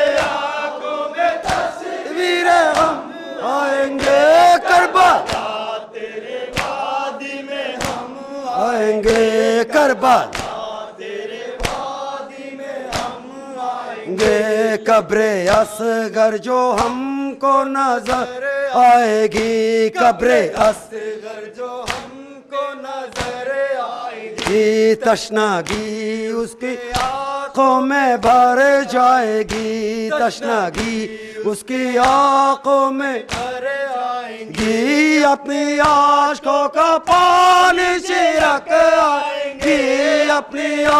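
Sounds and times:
men chanting lament: 0:00.0 - 0:40.9
reciter over microphone: 0:00.0 - 0:40.9
hands beating on chests: 0:10.3 - 0:10.6, 0:12.9 - 0:13.2.

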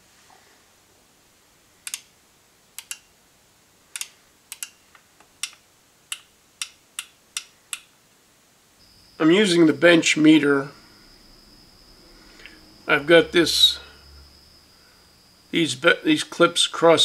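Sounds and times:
microswitches clicking: 0:01.8 - 0:02.1, 0:02.8 - 0:03.1, 0:03.9 - 0:07.9.

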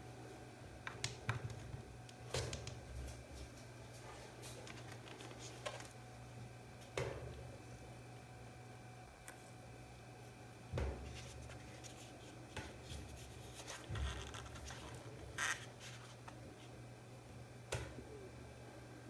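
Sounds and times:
steady low hum: 0:00.0 - 0:19.0
paper cup knocks and rubs: 0:10.8 - 0:15.6.

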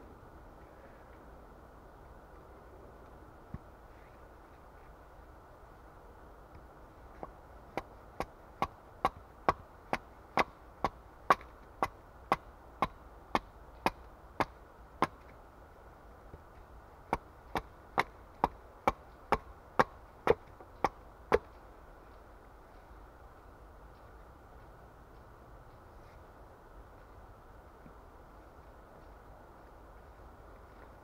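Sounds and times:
hatchet chopping wood: 0:07.7 - 0:15.2, 0:17.1 - 0:21.5.

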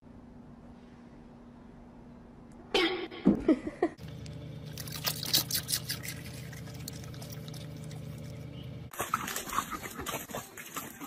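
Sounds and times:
vehicle low hum: 0:04.0 - 0:10.8
dog wet mouth noises: 0:04.7 - 0:11.0.

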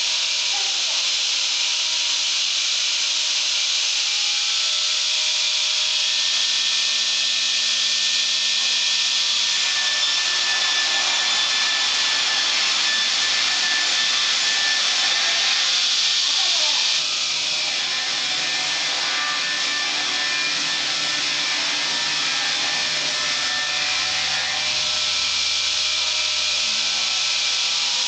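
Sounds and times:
saw blade cutting log: 0:06.6 - 0:25.3.

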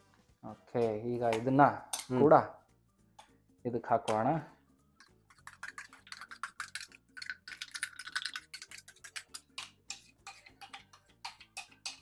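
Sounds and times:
spoon scraping and tapping a jar: 0:05.0 - 0:12.0.

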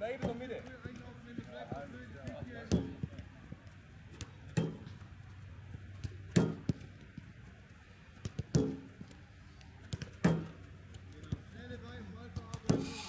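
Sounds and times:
light taps of ball and feet: 0:00.0 - 0:12.9
football thudding against board: 0:02.6 - 0:03.1, 0:06.3 - 0:06.8, 0:08.2 - 0:08.9, 0:09.9 - 0:10.6, 0:12.4 - 0:13.0.

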